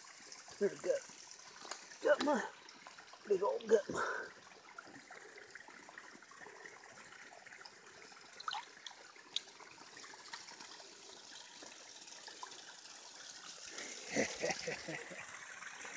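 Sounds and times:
water trickling and splashing: 0.0 - 15.9
small sharp splashes: 8.4 - 9.6.

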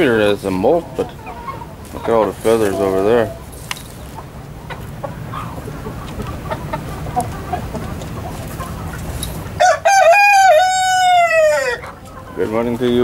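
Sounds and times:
chickens clucking: 0.0 - 13.0
rooster crowing: 9.6 - 12.0.

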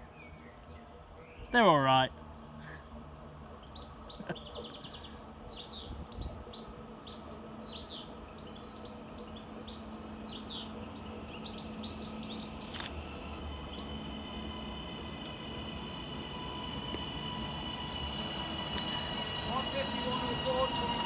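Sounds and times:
electric train hum: 0.0 - 21.0
small birds chirping: 3.5 - 12.9, 16.7 - 21.0.

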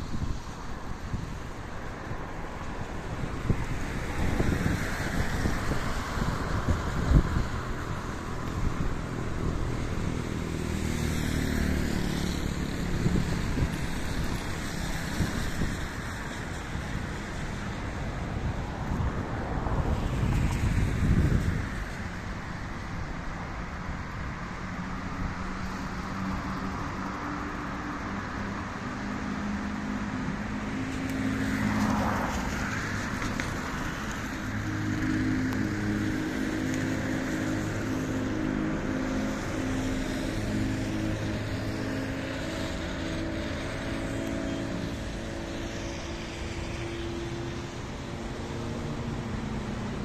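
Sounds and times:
traffic engine hum: 0.0 - 50.0
tyres hissing on wet road: 0.0 - 50.0.

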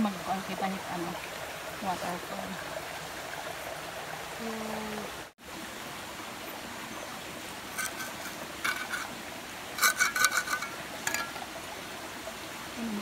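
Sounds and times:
stream rushing: 0.0 - 13.0
metal trowel scraping rock: 7.7 - 11.5.

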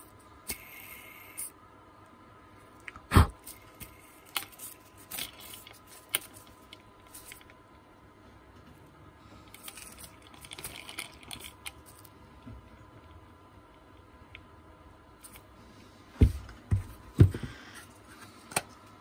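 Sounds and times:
small parts and tools clicking: 3.5 - 7.6, 9.4 - 12.2.

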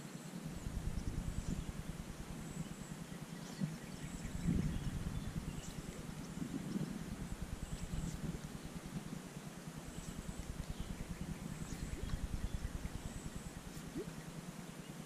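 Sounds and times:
wind rumble on microphone: 0.4 - 15.0
faint high bird chirps: 9.9 - 15.0.

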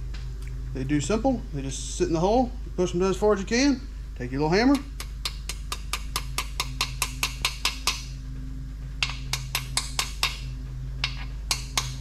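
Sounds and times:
small hammer tapping metal: 4.7 - 8.0, 9.0 - 10.4, 11.0 - 12.0.

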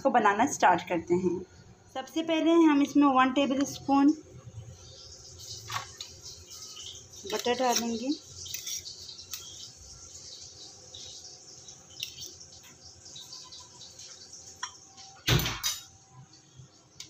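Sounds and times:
spoon scraping butter in bowl: 6.0 - 9.7.

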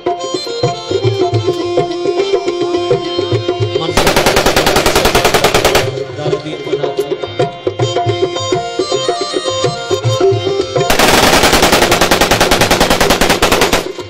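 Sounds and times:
live folk music: 0.0 - 11.0
steady drumming: 3.8 - 6.8, 10.8 - 14.0
automatic rifle fire: 4.0 - 6.1, 10.9 - 14.0.

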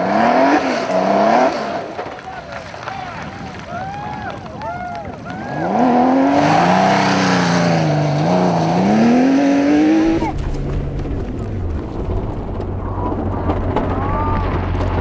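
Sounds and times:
rally car engine accelerating: 0.0 - 2.3, 5.6 - 15.0
low steady rumble: 3.8 - 15.0.

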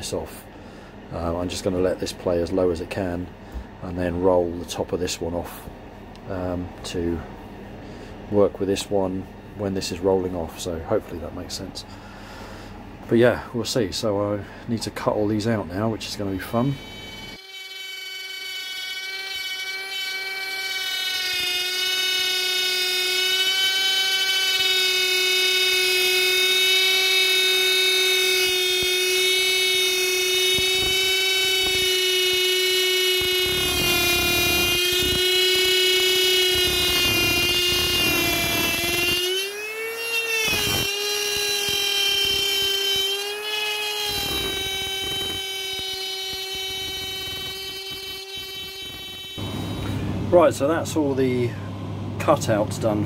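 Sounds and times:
router cutting plywood: 15.7 - 51.1.

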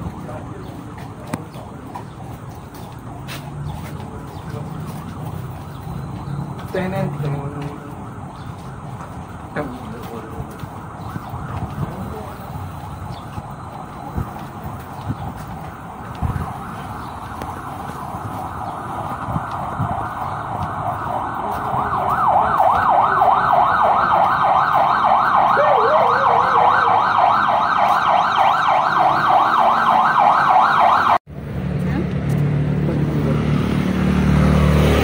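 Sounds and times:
emergency siren yelping: 4.3 - 14.6, 15.2 - 31.2.

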